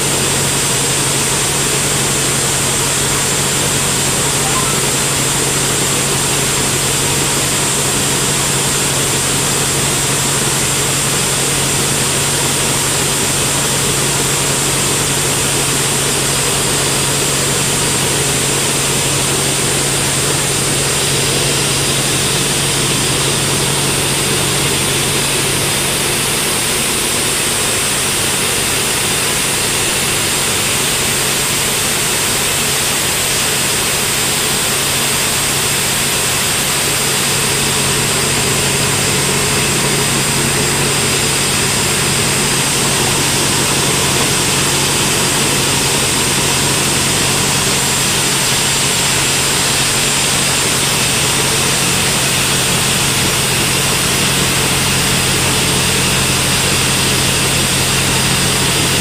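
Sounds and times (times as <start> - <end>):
band sawmill drone: 0.0 - 59.0
thin high whine: 4.0 - 6.1.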